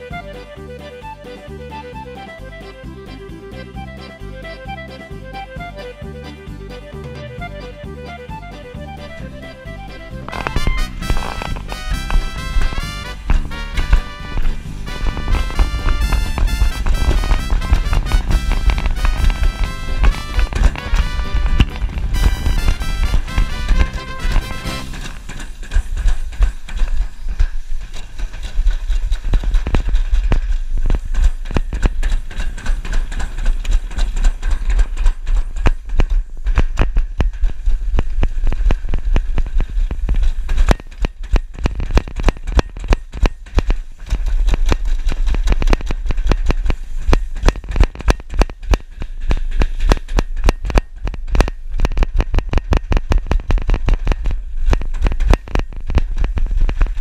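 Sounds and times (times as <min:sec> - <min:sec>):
sled rattling down metal trough: 0:08.9 - 0:57.0.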